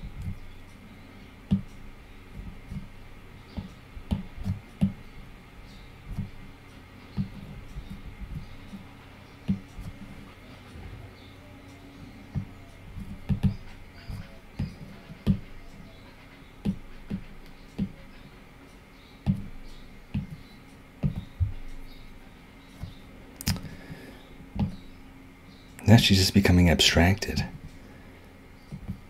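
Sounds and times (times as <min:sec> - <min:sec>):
faint steady hum: 0:00.0 - 0:29.0
stylus tapping on tablet screen: 0:16.6 - 0:18.0.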